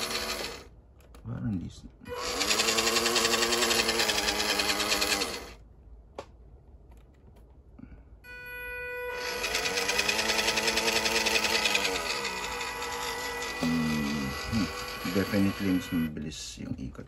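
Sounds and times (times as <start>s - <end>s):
toy car motor whirring and whining: 0.0s - 0.7s, 2.1s - 5.6s, 8.8s - 16.2s.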